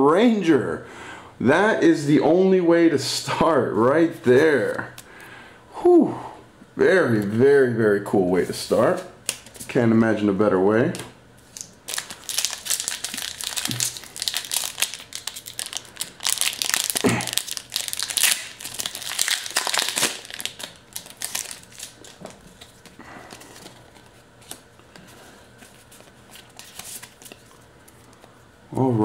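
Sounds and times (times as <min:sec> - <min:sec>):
cards rustling: 0:11.4 - 0:28.3
foil wrapper crinkling and tearing: 0:11.5 - 0:24.6.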